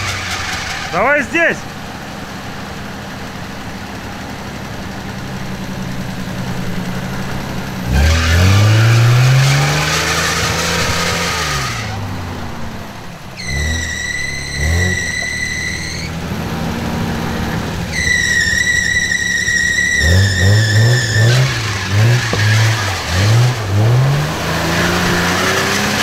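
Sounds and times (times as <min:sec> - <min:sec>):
engine revving: 0:00.0 - 0:01.6, 0:04.6 - 0:26.0
high steady squeal: 0:06.9 - 0:16.2, 0:17.3 - 0:23.4.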